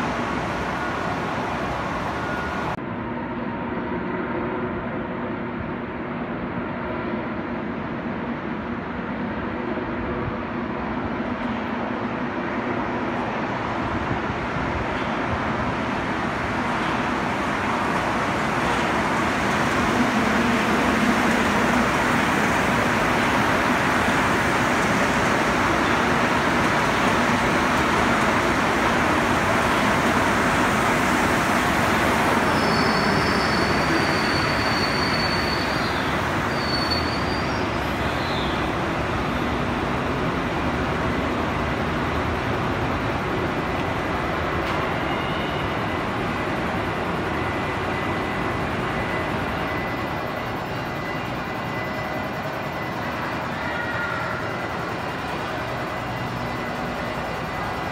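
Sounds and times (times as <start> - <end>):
metro train rumble: 0.0 - 57.9
high squeal: 32.3 - 38.8, 48.2 - 57.6.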